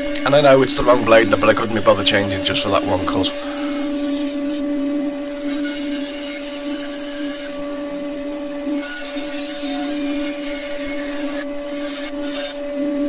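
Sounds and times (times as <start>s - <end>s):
bandsaw motor hum: 0.0s - 13.0s
saw blade cutting wood hiss: 8.8s - 12.6s.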